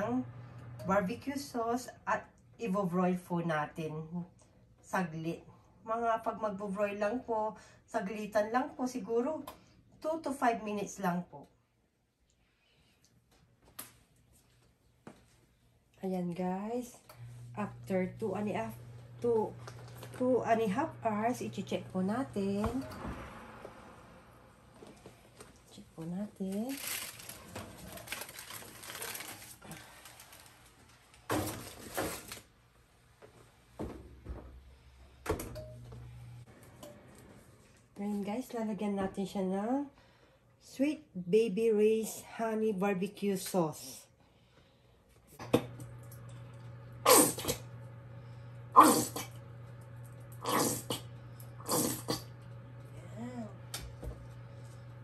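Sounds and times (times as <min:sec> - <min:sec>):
steady low hum: 0:16.8 - 0:28.6, 0:45.1 - 0:55.0.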